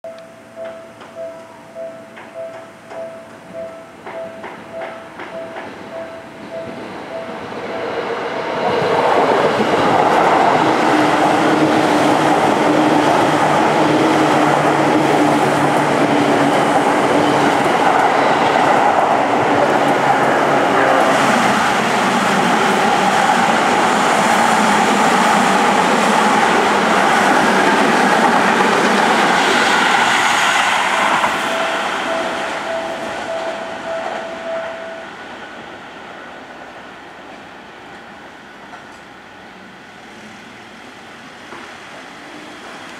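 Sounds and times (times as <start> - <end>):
level crossing warning bell: 0.0 - 8.0, 30.7 - 35.4
electric train passing at speed: 0.1 - 42.9.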